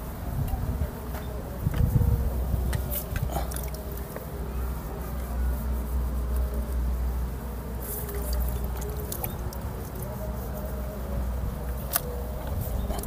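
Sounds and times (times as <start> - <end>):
soil crumbling and rustling: 7.8 - 10.4.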